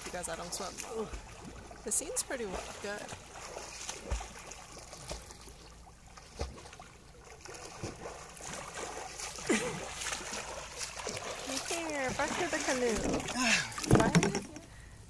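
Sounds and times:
swimmer splashing in water: 6.3 - 14.4.

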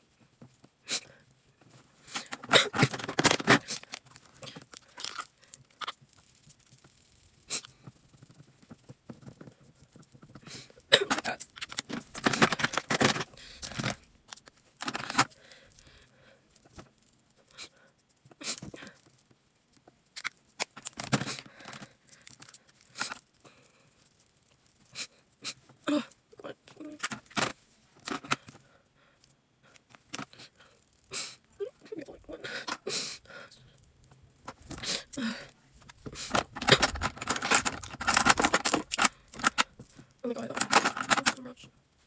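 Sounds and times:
clicks and taps of cases: 2.1 - 5.3, 7.6 - 15.4, 18.6 - 23.2, 35.8 - 41.4.

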